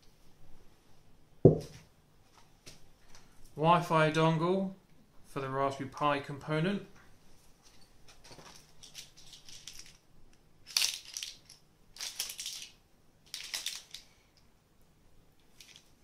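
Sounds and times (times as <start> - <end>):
plastic packaging crinkling: 8.2 - 10.0, 10.6 - 14.2.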